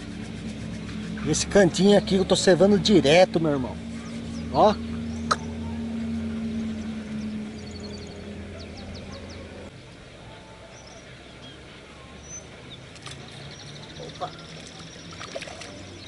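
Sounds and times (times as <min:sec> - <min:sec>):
steady low hum: 0:00.0 - 0:16.0
small birds chirping: 0:03.8 - 0:10.1, 0:10.7 - 0:16.0.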